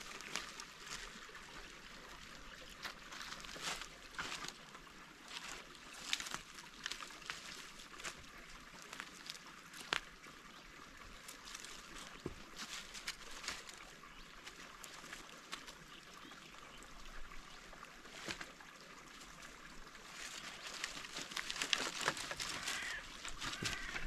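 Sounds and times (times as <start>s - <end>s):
dry leaves crackling: 0.0s - 10.1s, 11.2s - 16.4s, 18.0s - 24.0s
firewood sticks clattering: 20.2s - 24.0s.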